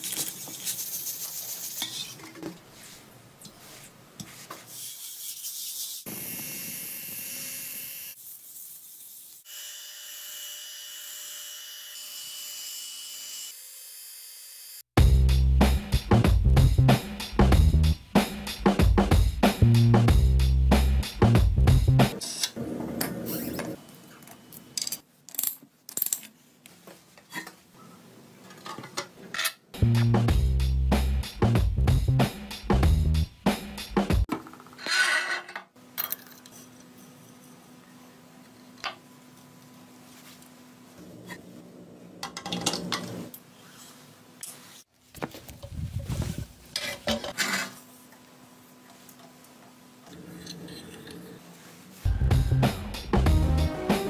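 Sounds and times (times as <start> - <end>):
background music: 52.1 - 54.0.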